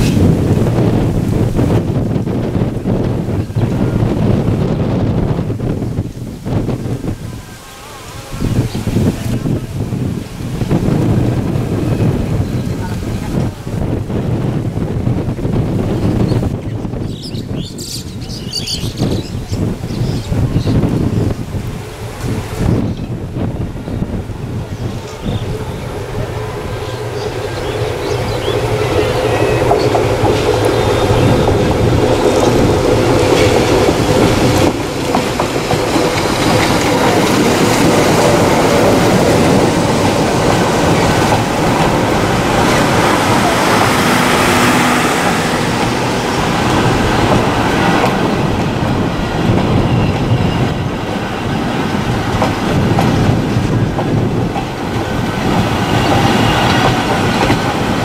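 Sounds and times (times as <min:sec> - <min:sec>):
diesel locomotive engine: 0:00.0 - 0:58.0
train wheels clattering over rail joints: 0:26.6 - 0:58.0.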